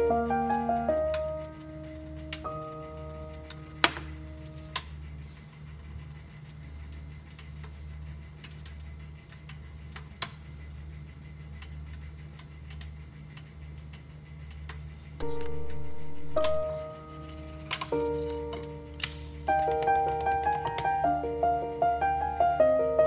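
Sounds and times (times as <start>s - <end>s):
background music: 0.0s - 5.0s, 15.2s - 23.0s
low hum: 0.0s - 23.0s.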